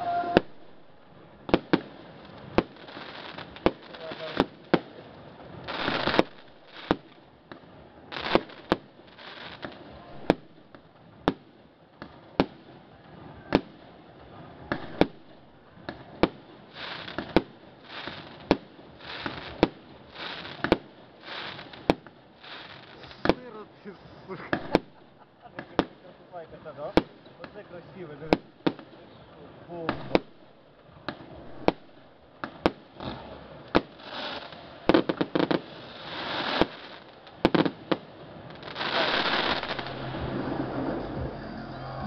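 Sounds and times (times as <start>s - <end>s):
firework shells exploding: 0.0s - 14.0s, 14.6s - 26.1s, 26.7s - 29.0s, 29.8s - 41.2s
fireworks hissing and crackling: 0.0s - 42.0s.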